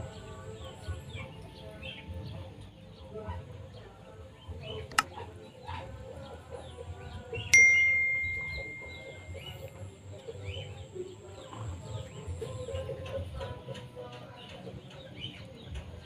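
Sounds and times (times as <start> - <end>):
birds chirping: 0.0 - 16.0
sharp click: 4.9 - 5.1
bright bell ding: 7.6 - 9.5.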